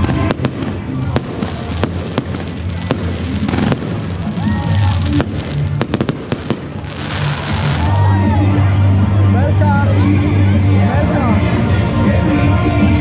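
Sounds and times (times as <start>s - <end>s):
fireworks bangs and crackles: 0.0s - 8.3s
music with steady bass line: 0.0s - 13.0s.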